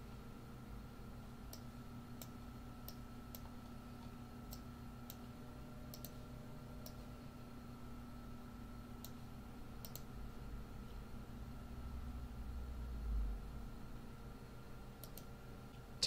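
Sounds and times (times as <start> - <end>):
faint steady hum: 0.0 - 16.0
computer mouse clicking: 1.5 - 5.3, 5.9 - 6.2, 9.0 - 9.2, 9.8 - 10.1, 15.0 - 15.3.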